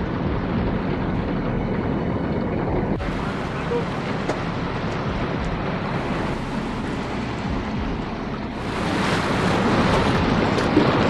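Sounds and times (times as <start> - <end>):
water rushing along hull: 0.0 - 11.0
wind buffeting microphone: 0.0 - 11.0.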